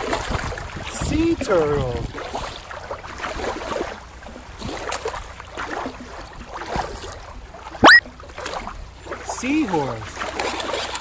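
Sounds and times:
wind rumble on microphone: 0.0s - 2.5s.

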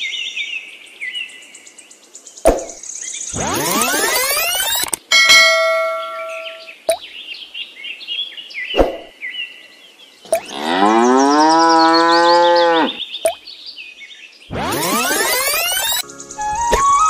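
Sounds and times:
cow mooing: 10.4s - 13.0s.

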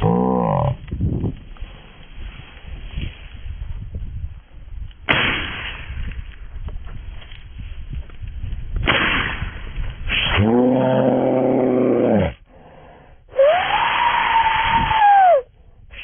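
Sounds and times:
shotgun shots: 5.1s - 6.0s, 8.8s - 9.6s.

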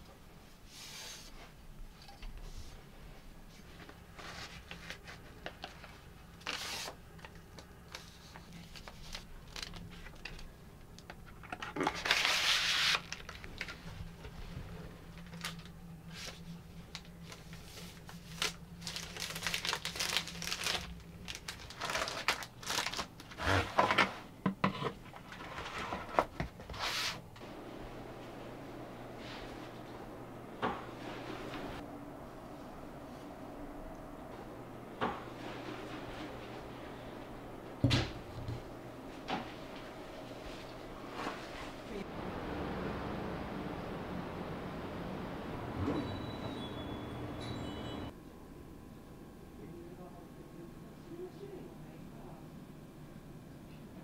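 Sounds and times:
paper and plastic rustling: 3.5s - 27.2s.

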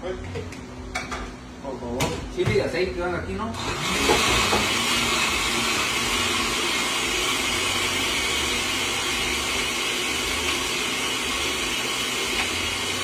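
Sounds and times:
blender whirring: 3.5s - 13.0s.

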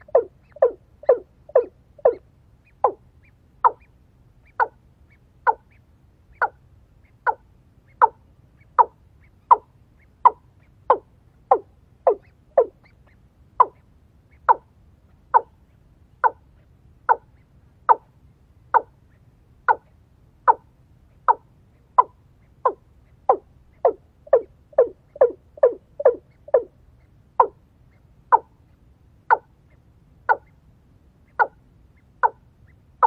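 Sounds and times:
bird calling: 0.0s - 14.7s, 15.3s - 15.6s, 21.2s - 28.5s, 30.3s - 30.6s, 31.3s - 32.8s.

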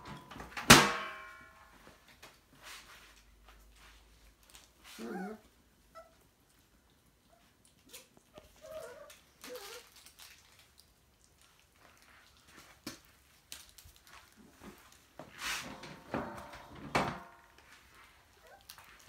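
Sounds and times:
puppy crying: 5.0s - 6.2s.

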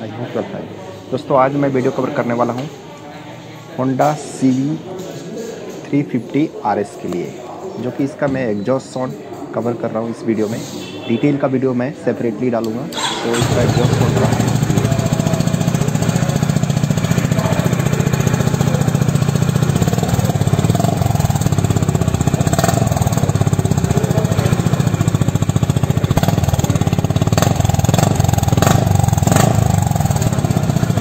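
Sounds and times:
motorcycle engine idling: 13.1s - 31.0s.

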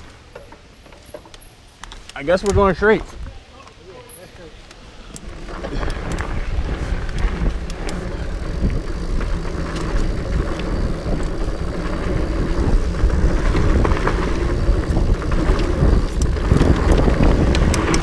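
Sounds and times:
bike tyre rumble on dirt: 4.8s - 18.0s
wind buffeting microphone: 5.0s - 18.0s
bike rattles and knocks: 5.1s - 18.0s.

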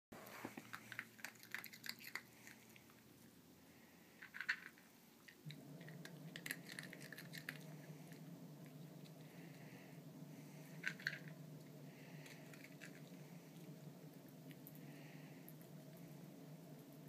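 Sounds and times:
steady low hum: 0.2s - 17.0s
dog chewing: 0.3s - 3.2s, 5.7s - 9.2s, 10.8s - 14.8s
kibble rattling in plastic feeder: 4.2s - 4.9s, 10.8s - 11.4s.

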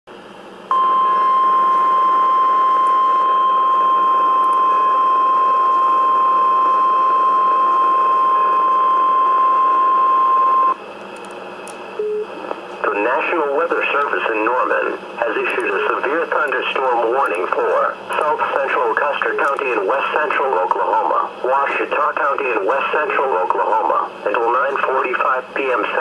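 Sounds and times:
steady high alarm tone: 0.7s - 10.8s
receiver hiss: 11.5s - 26.0s.

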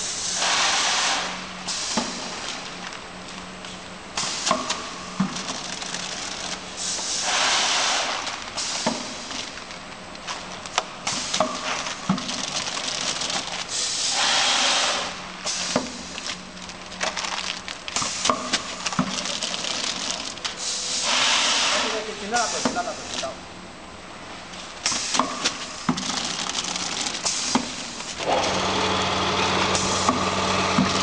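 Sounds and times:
rushing hissing bursts: 6.8s - 8.8s, 13.7s - 15.8s, 20.6s - 22.9s
machine motor hum: 28.2s - 31.0s.

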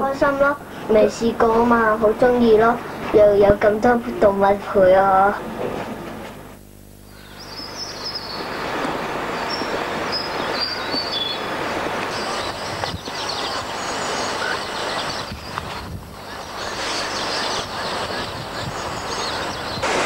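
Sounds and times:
high bird chirps: 7.1s - 8.6s, 9.4s - 11.5s
steady rushing noise: 7.7s - 20.0s.

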